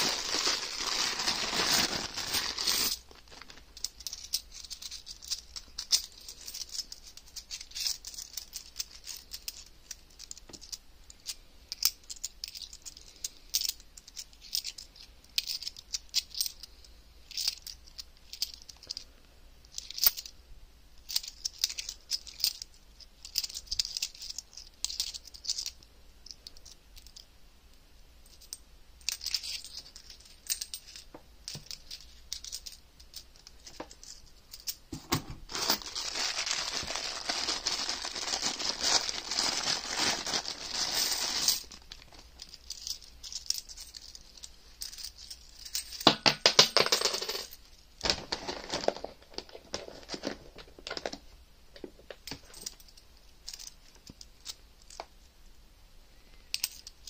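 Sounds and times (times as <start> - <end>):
plastic bag crinkling and tearing: 0.0 - 6.3, 35.5 - 42.3
coins clinking: 0.0 - 10.8, 35.6 - 47.6.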